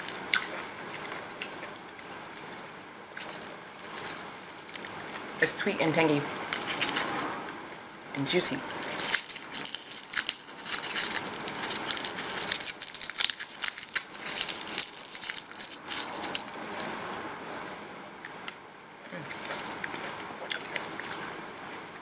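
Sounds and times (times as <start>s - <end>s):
person eating berry: 0.0s - 5.7s, 8.0s - 17.6s, 18.2s - 21.7s
dry husks crinkling and tearing: 3.2s - 5.3s, 6.5s - 7.2s, 8.6s - 17.6s, 19.2s - 21.4s.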